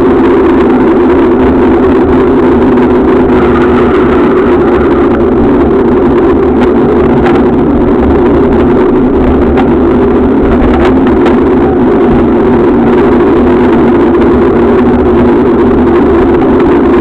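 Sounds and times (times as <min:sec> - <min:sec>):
bicycle rolling vibration: 0:00.0 - 0:17.0
wind rumble on microphone: 0:00.0 - 0:17.0.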